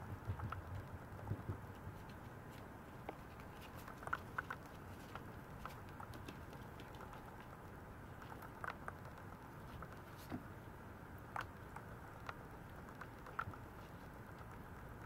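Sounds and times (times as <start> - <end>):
low steady hiss: 0.0 - 15.0
puppy claws clicking on tiles: 0.1 - 7.6, 11.2 - 15.0.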